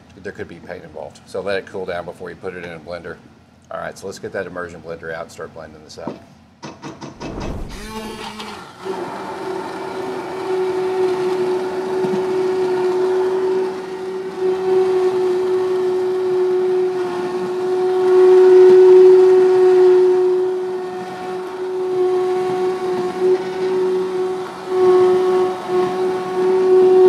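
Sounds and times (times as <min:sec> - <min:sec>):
immersion blender motor whine: 0:07.2 - 0:27.0.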